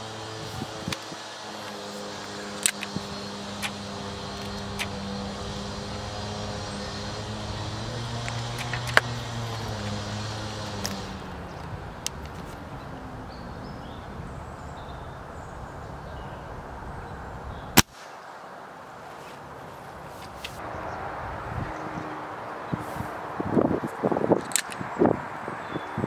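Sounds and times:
low mechanical hum: 0.0s - 17.6s
air rifle clicks: 2.6s - 5.0s, 8.2s - 9.2s, 24.4s - 24.8s.

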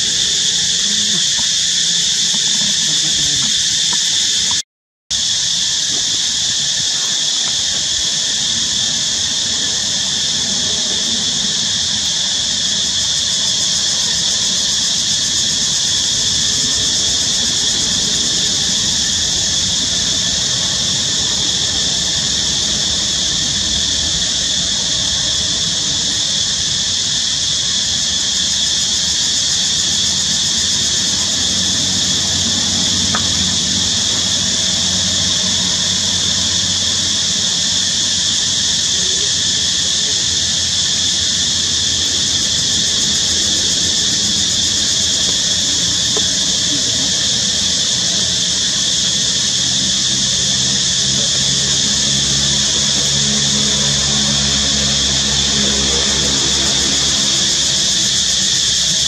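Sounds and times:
high-pitched buzzing drone: 49.7s - 59.0s.

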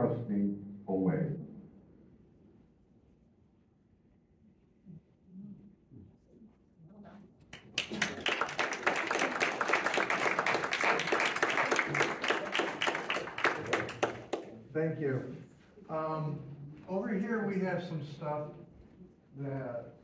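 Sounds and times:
audience applauding: 7.5s - 14.6s.

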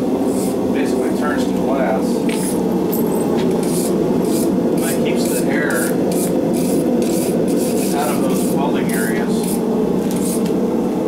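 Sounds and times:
loud steady rushing noise: 0.0s - 11.0s
wire brush scrubbing metal: 3.6s - 10.5s.

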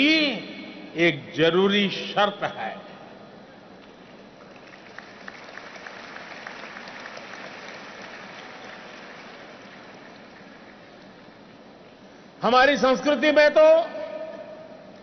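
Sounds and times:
audience applauding: 4.4s - 11.2s.

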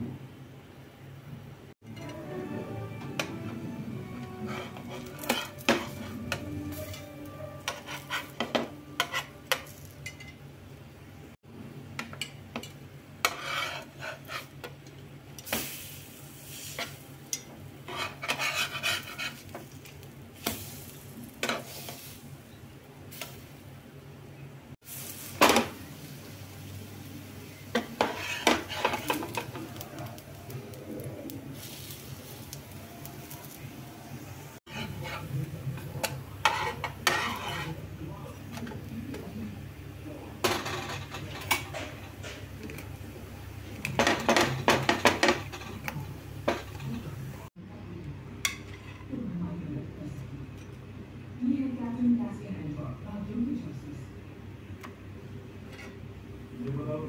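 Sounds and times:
spatula scraping on pan: 3.5s - 10.2s, 13.2s - 14.8s, 16.4s - 22.2s, 27.7s - 30.4s, 34.6s - 38.8s, 43.9s - 47.1s, 55.6s - 56.1s
bread frying with sizzle: 3.9s - 10.1s, 12.0s - 24.2s, 24.8s - 47.5s.

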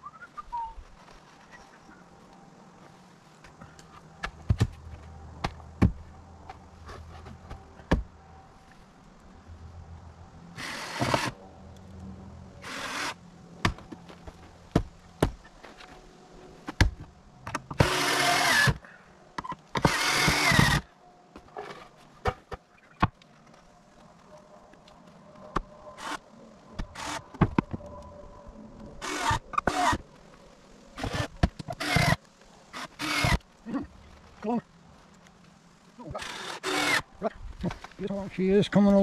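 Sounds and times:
power drill bursts: 10.6s - 11.4s, 17.8s - 18.8s, 19.8s - 20.8s, 31.0s - 33.4s, 36.1s - 37.0s.

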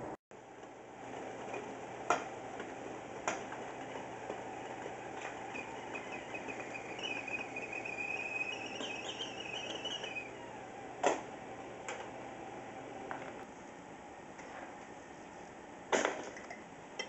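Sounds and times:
kettle whistling: 3.2s - 11.2s.

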